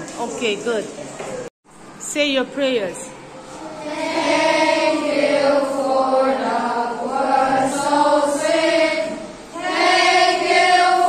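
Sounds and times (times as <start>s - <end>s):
children chanting in unison: 3.5s - 11.0s.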